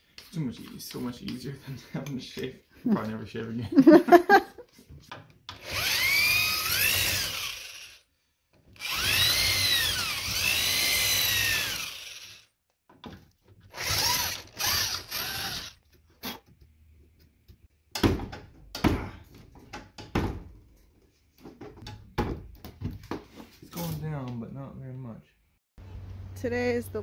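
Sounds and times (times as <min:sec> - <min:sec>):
electric drill boring: 0:05.5 - 0:08.1, 0:08.8 - 0:12.5, 0:13.7 - 0:15.8.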